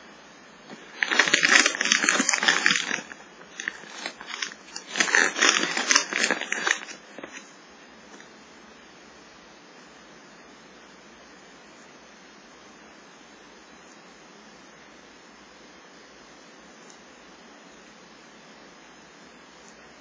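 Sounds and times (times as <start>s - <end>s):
plastic bag crackling: 0.6s - 7.5s.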